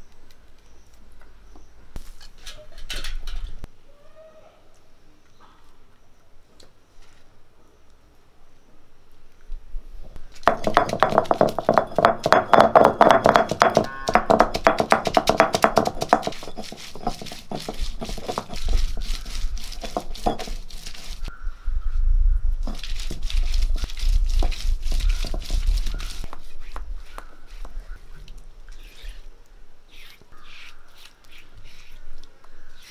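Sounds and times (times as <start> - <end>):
stone knocking on stone: 10.4 - 19.0, 19.8 - 20.7.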